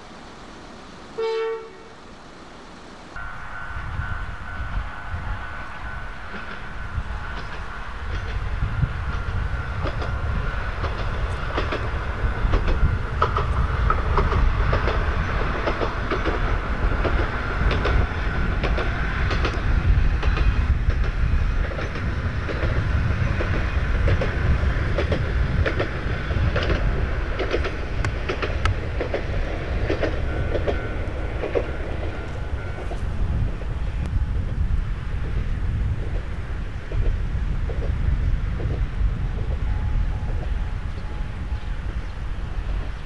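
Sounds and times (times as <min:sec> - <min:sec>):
diesel railcar rumble: 0:00.0 - 0:43.0
wheels clacking over rail joints: 0:06.0 - 0:34.7.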